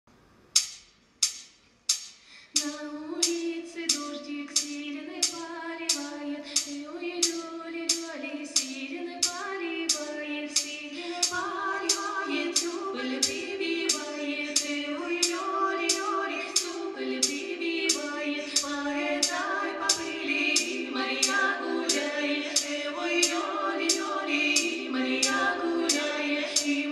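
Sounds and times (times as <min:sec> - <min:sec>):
sharp percussion beat: 0:00.6 - 0:02.8, 0:11.2 - 0:26.8
women singing in harmony: 0:02.6 - 0:26.9.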